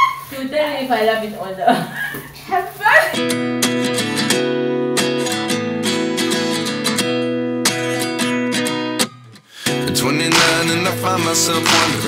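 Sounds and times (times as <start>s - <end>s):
acoustic guitar picking: 3.1s - 12.0s.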